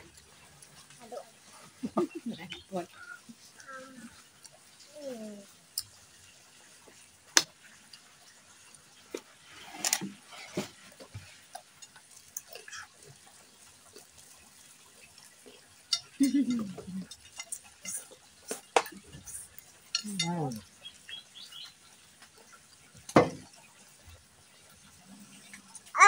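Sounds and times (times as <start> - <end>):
noodles slurped and chewed: 2.9 - 19.9.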